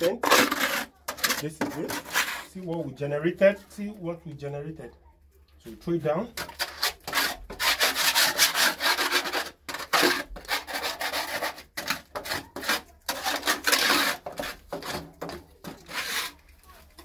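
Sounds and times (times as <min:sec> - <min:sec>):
hand tool scraping concrete floor: 0:00.0 - 0:02.8, 0:06.4 - 0:17.0.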